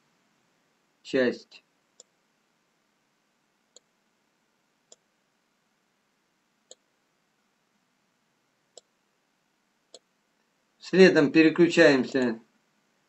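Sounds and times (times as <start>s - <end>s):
faint mouse clicks: 1.9s - 2.2s, 3.7s - 4.0s, 4.9s - 5.1s, 6.6s - 6.9s, 8.7s - 9.0s, 9.9s - 10.5s.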